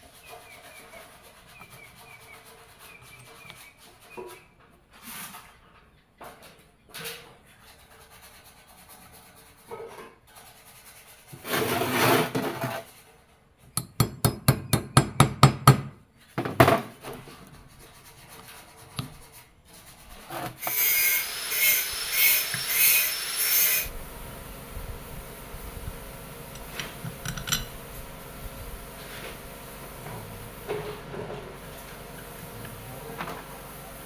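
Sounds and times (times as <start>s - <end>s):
metal scraping rub: 7.5s - 13.3s, 16.9s - 24.0s, 26.4s - 32.4s
pulsing whir with whine: 20.8s - 30.9s.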